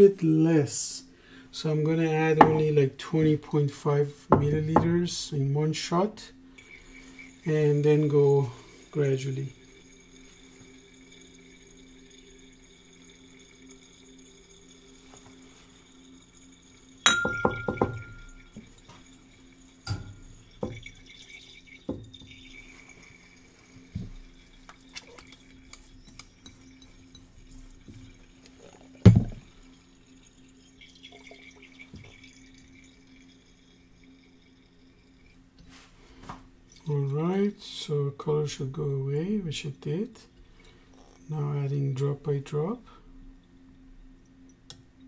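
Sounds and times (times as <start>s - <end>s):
faint steady hum: 0.0s - 45.0s
glassware clinking: 2.4s - 2.7s, 9.5s - 23.4s, 24.0s - 34.4s.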